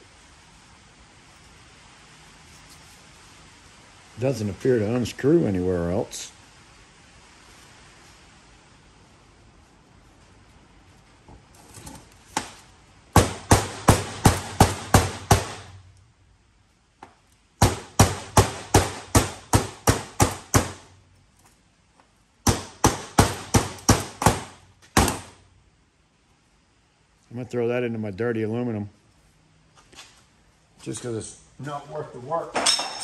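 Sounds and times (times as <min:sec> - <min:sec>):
hammer striking metal: 0:32.6 - 0:33.0.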